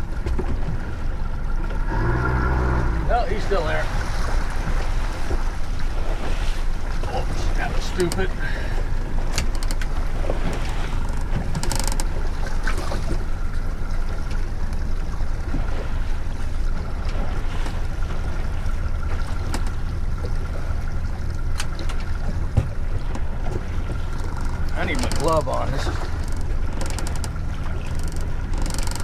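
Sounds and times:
outboard engine drone: 0.0s - 29.0s
water noise: 0.0s - 29.0s
sharp clicks and knocks: 9.3s - 10.0s, 11.1s - 12.2s, 26.2s - 29.0s.

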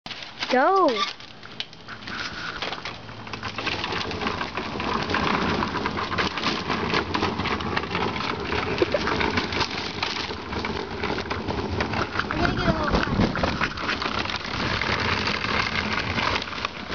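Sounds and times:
cardboard float rattling on concrete: 0.1s - 16.9s.

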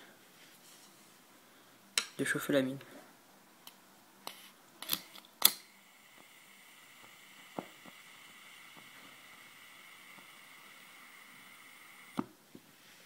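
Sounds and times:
gas flame hissing: 5.4s - 12.3s.

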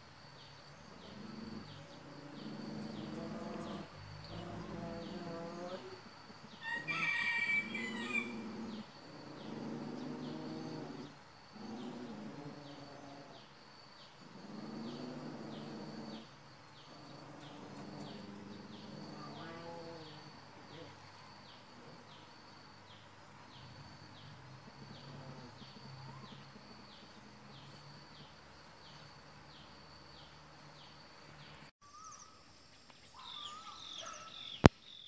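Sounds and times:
insect chirping: 0.0s - 35.0s
rooster crowing: 6.6s - 8.8s.

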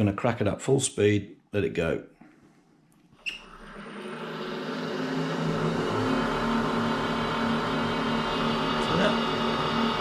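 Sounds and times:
lathe motor whirring hum: 3.4s - 10.0s.

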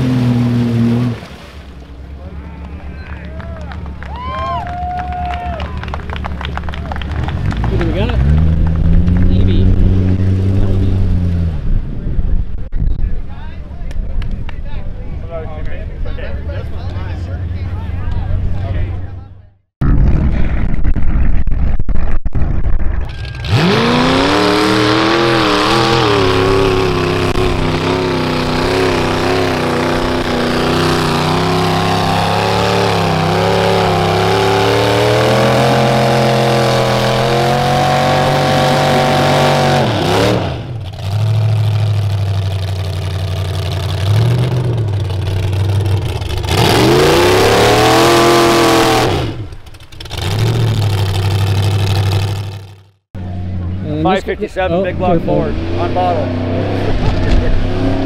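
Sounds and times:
truck engine revving hard: 0.0s - 1.6s, 5.3s - 11.8s, 23.1s - 58.0s.

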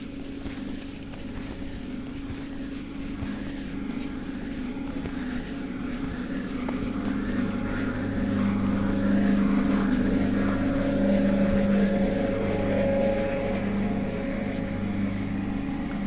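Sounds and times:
electric train hum: 0.0s - 16.0s
higher electrical tone: 3.0s - 16.0s.

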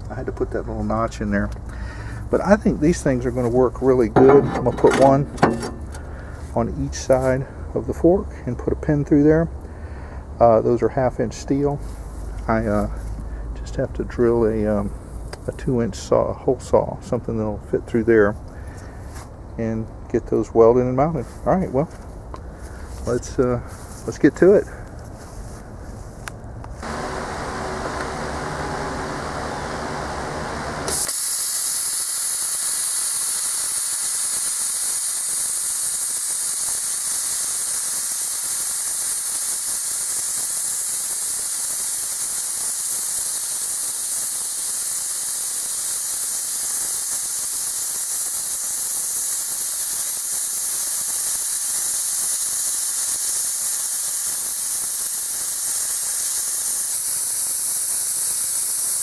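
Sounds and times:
plasma cutter arc hissing: 30.8s - 59.0s.

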